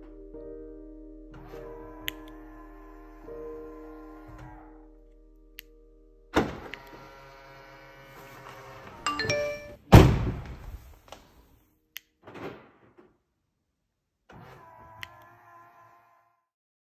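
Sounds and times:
ringing musical chord: 9.1s - 9.8s
short chime: 9.1s - 9.8s
loud deep thunk: 9.9s - 10.6s.

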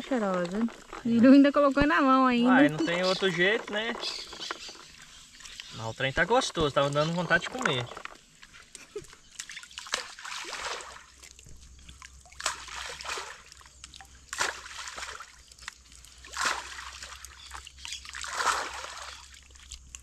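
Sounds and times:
groundbait splashing on water: 6.6s - 20.0s.

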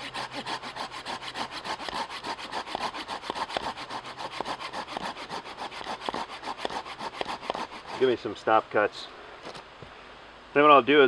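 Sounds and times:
hand saw cutting a log: 0.0s - 8.4s.

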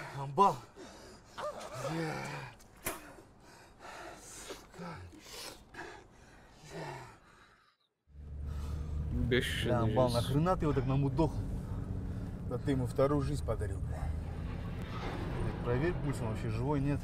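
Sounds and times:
steady low hum: 8.1s - 16.9s.

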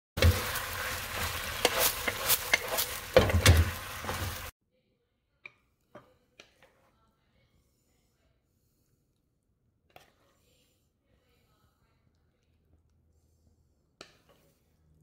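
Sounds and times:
food sizzling in a pan: 0.2s - 4.5s
spatula knocking and scraping pan: 0.2s - 4.5s.

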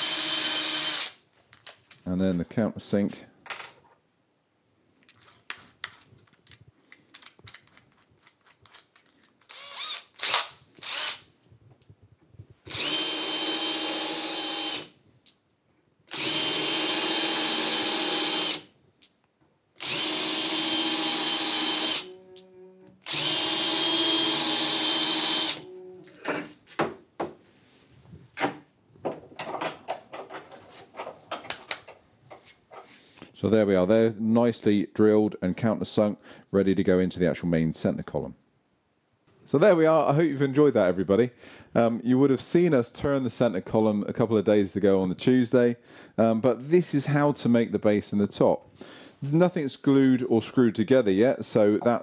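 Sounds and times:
cordless drill countersinking wood: 0.0s - 1.2s, 9.4s - 11.2s, 12.7s - 14.9s, 16.1s - 18.7s, 19.8s - 22.2s, 23.0s - 26.3s
wooden workpieces knocking: 26.1s - 27.4s, 28.4s - 32.9s.

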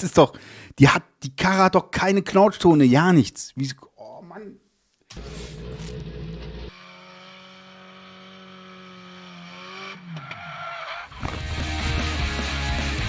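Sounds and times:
car engine at high revs: 5.1s - 10.4s
tyre squeal: 10.1s - 11.3s.

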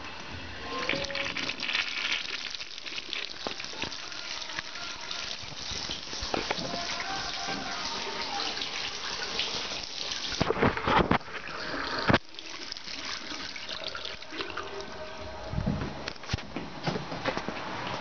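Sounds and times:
water running into porcelain bowl: 0.7s - 15.0s.

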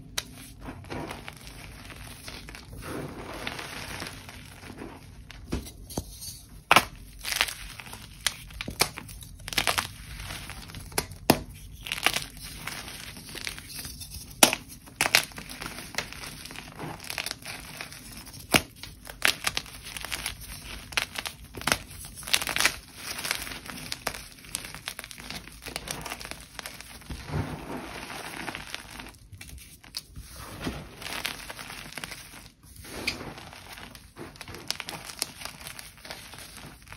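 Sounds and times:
chalk crunching and sifting: 0.0s - 5.5s, 14.8s - 36.9s.

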